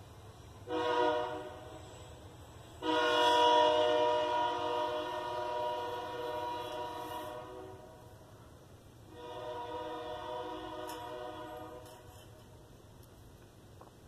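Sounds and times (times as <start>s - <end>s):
train horn blasts: 0.6s - 2.1s, 2.8s - 8.2s, 9.1s - 12.5s.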